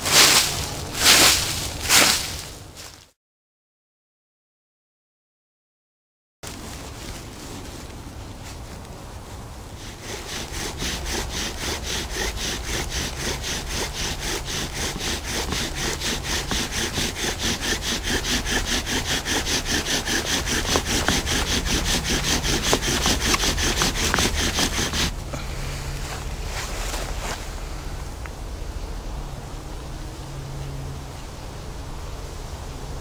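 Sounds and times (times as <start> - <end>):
wood-on-wood rasping bow drill: 9.8 - 25.2.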